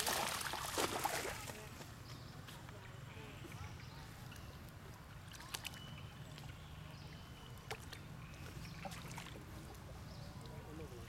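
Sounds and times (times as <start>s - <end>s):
water splashing and dripping: 0.0s - 1.6s.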